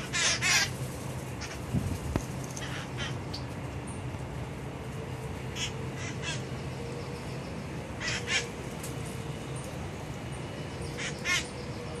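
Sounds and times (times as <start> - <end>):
parakeet screeching: 0.0 - 0.7, 2.6 - 3.2, 5.6 - 6.5, 8.0 - 8.5, 10.9 - 11.5
steady low hum: 0.0 - 12.0.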